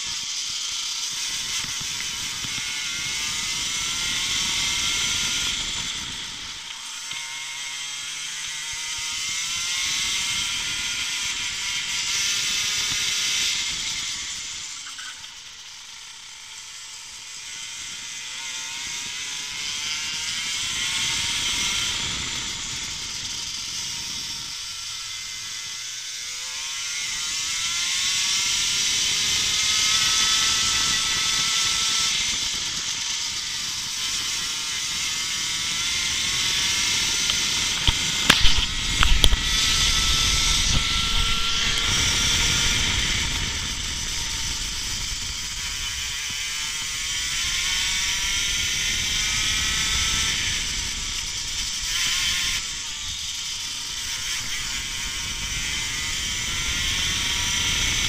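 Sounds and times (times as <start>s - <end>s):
kart engine revving: 0.0s - 58.0s
wind noise on microphone: 1.3s - 6.6s, 18.8s - 24.8s, 27.1s - 58.0s.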